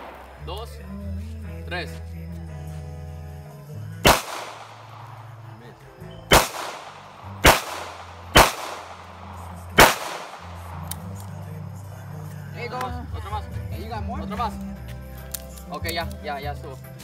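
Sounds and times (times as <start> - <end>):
handgun shots: 4.0 - 5.3, 6.3 - 11.4.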